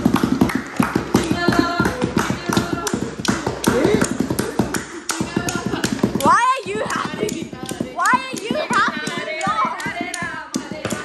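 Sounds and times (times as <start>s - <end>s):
wooden blocks clacking together: 0.0s - 11.0s.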